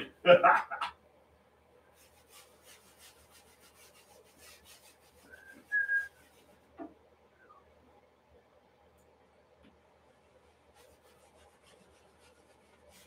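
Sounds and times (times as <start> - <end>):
paint rubbing on canvas: 2.0 - 6.8, 10.2 - 13.0.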